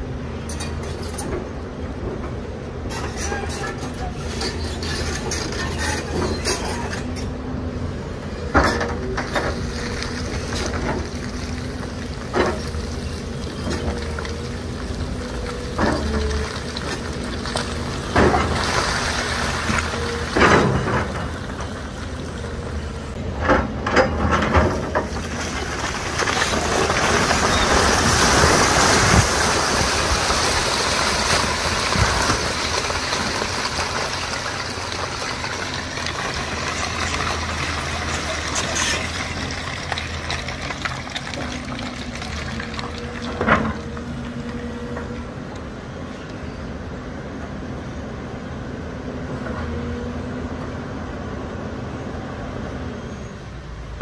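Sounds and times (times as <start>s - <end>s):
diesel excavator engine humming: 0.0s - 54.0s
rock and soil sliding: 8.7s - 23.1s, 24.3s - 45.0s.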